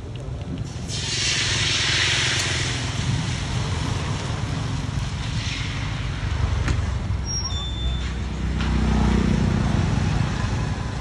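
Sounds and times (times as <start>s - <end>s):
batter sizzling in hot oil: 0.6s - 6.2s.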